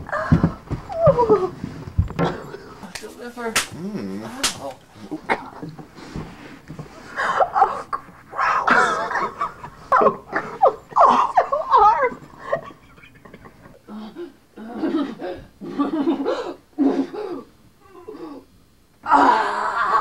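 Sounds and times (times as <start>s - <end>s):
people laughing: 8.7s - 13.8s.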